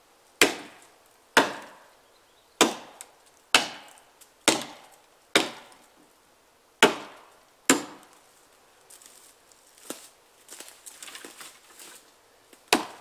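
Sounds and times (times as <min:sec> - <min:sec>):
axe chopping log: 0:00.4 - 0:00.8, 0:01.4 - 0:01.8, 0:02.6 - 0:05.8, 0:06.8 - 0:08.1, 0:12.6 - 0:13.0
twigs crackling and rustling: 0:03.0 - 0:06.0, 0:08.0 - 0:13.0.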